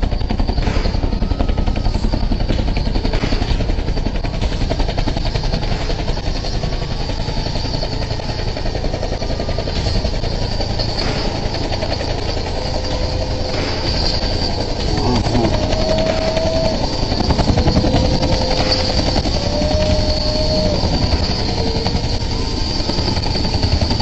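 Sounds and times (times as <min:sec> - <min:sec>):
helicopter rotor beat: 0:00.0 - 0:24.0.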